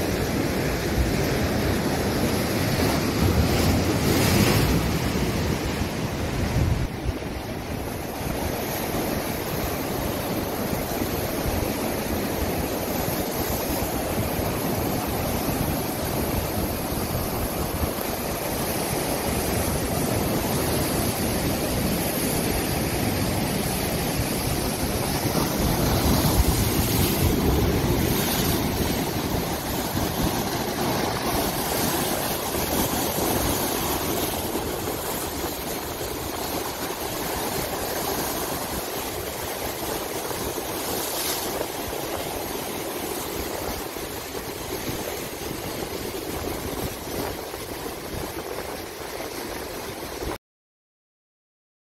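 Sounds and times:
surf breaking on rocky shore: 0.0 - 50.4.

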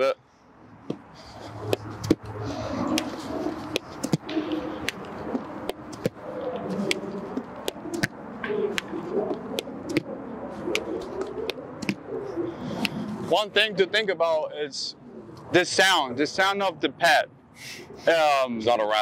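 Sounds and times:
bird cooing: 1.2 - 13.1.

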